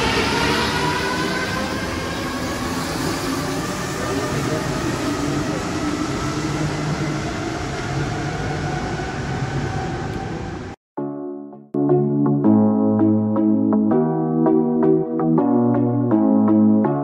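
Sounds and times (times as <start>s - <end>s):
metro train running with whine: 0.0s - 10.8s.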